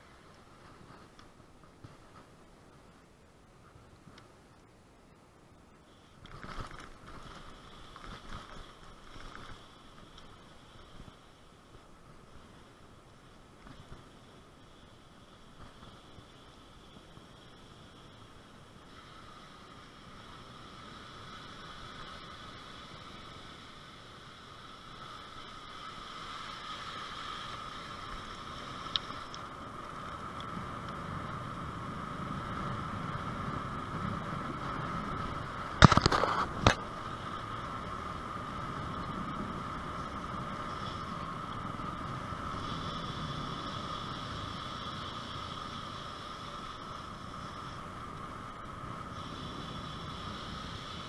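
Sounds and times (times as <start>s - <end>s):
bicycle tyre and drivetrain noise: 0.0s - 51.0s.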